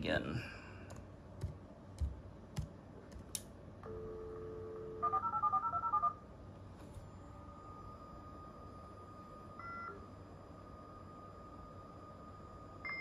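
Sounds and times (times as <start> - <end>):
dial tone: 3.8 - 6.2.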